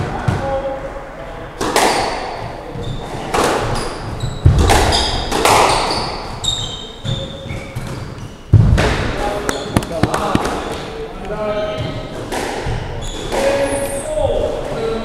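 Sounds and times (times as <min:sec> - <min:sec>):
squash ball hitting rackets and walls: 0:00.0 - 0:00.7, 0:01.6 - 0:11.0, 0:11.8 - 0:13.6
shoes squeaking on wooden floor: 0:02.3 - 0:08.6, 0:09.2 - 0:14.0.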